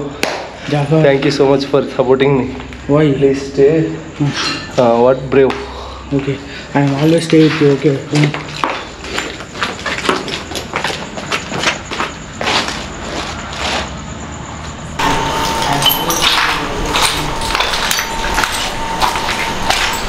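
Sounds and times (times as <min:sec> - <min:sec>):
footsteps on concrete: 0:06.2 - 0:14.0, 0:15.3 - 0:20.0
faint steady high tone: 0:14.9 - 0:20.0.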